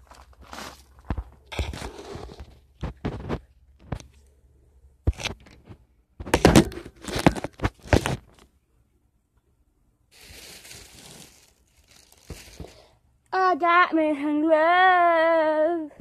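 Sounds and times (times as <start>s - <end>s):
phone handling rustle: 5.1s - 8.5s.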